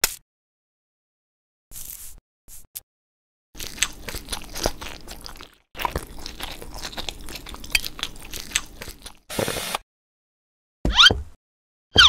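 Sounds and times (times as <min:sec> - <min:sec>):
crunchy chewing: 0:03.6 - 0:09.7.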